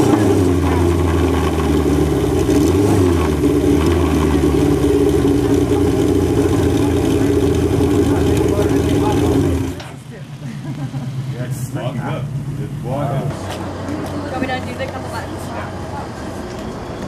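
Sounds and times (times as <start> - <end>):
motorcycle engine idling: 3.4 - 14.2.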